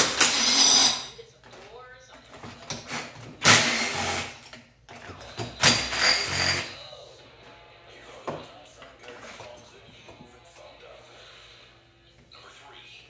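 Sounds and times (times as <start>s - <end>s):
cordless power driver running: 0.0s - 1.0s, 3.4s - 4.4s, 5.6s - 6.7s.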